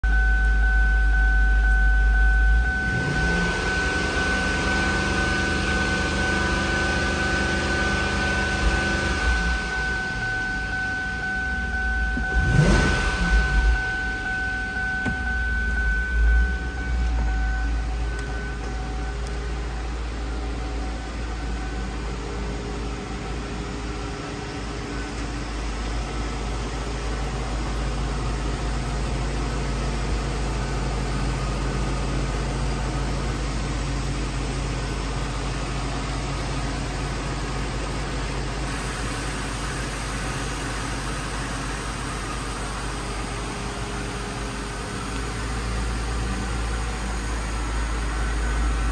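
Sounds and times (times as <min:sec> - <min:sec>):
high steady tone: 0:00.0 - 0:33.8
car engine idling: 0:00.1 - 0:48.9.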